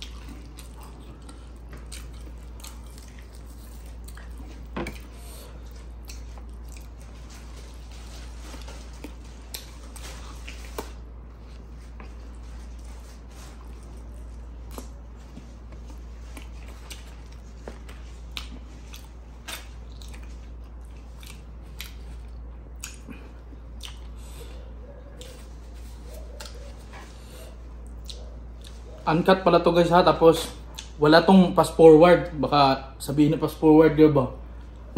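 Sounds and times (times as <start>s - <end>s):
chewing and biting: 0.0s - 29.0s.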